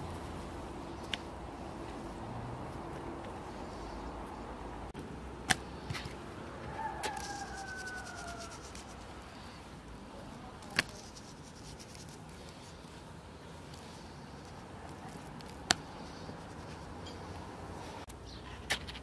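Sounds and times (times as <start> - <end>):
distant rooster crowing: 6.4 - 9.6
seasoning sprinkled on meat: 6.9 - 9.2.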